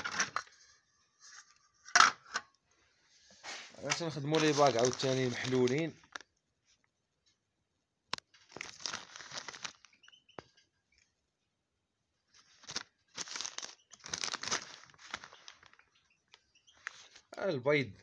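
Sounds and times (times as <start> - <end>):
plastic bags crinkling: 3.8 - 6.3, 8.2 - 10.2, 12.3 - 16.0.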